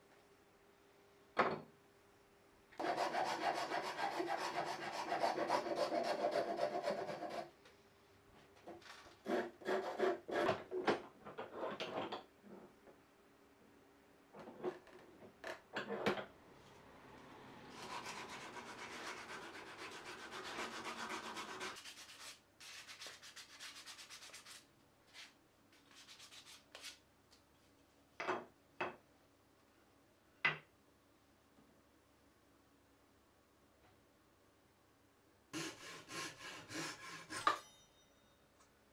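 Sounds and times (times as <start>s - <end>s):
sandpaper rubbing on wood: 2.8s - 7.4s, 17.8s - 24.6s, 35.6s - 37.4s.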